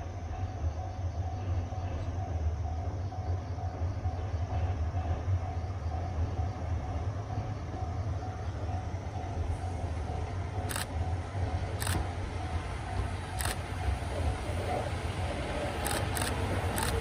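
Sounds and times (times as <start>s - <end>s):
camera shutter clicks: 10.7s - 10.9s, 11.8s - 12.0s, 13.4s - 13.6s, 15.8s - 17.0s.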